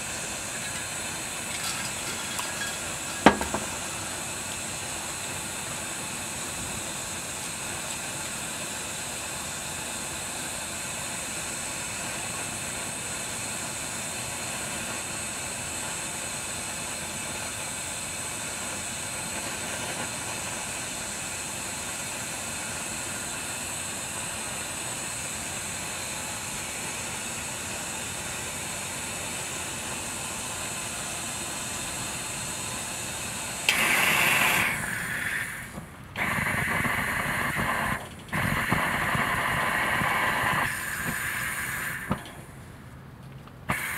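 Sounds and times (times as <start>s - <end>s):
pressure burner hissing: 0.0s - 42.7s, 43.7s - 43.9s.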